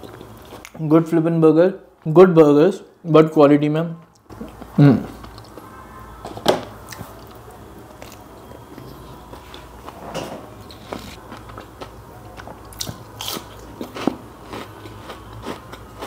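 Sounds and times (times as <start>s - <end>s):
crunchy chewing of fried food: 6.8s - 10.0s, 10.6s - 16.0s.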